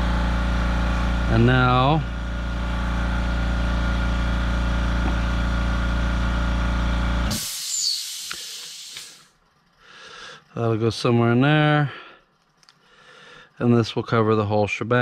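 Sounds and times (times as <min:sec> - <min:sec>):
machine deep hum: 0:00.0 - 0:07.5
short hiss: 0:07.3 - 0:09.3
faint clicks: 0:12.4 - 0:12.8.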